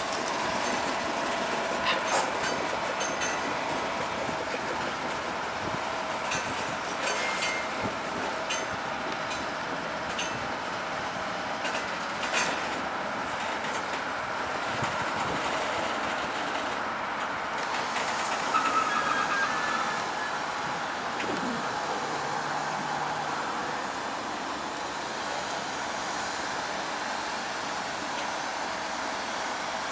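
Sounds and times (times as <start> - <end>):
wheels clicking over rail joints: 0.0 - 10.8, 11.6 - 21.8
train rumbling past: 0.0 - 29.9
wheel or brake squeal: 18.4 - 20.5.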